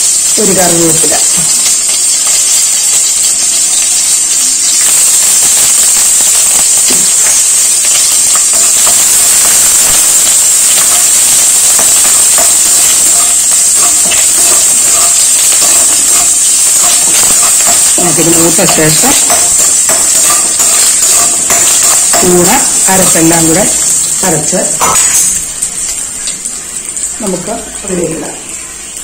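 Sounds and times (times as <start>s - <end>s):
food sizzling in hot oil: 0.0s - 29.0s
spoon stirring: 6.3s - 25.5s.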